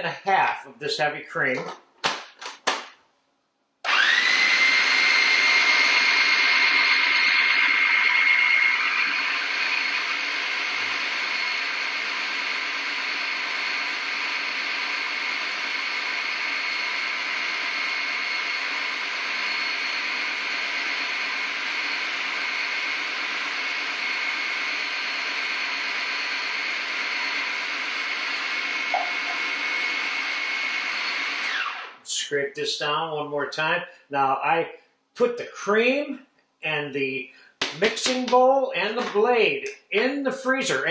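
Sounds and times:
food processor motor whining: 0:03.8 - 0:32.0.

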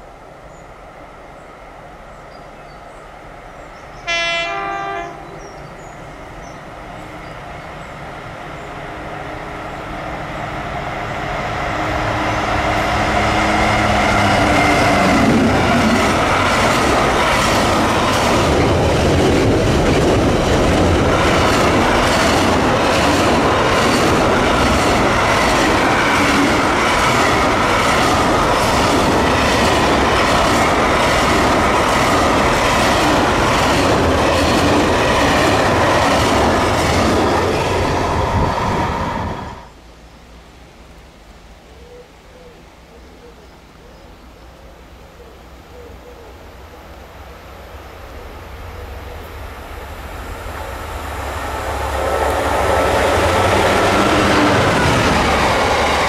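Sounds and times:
diesel locomotive engine: 0:00.0 - 0:41.2, 0:44.3 - 0:56.0
locomotive horn blast: 0:04.0 - 0:05.5, 0:51.4 - 0:53.8.

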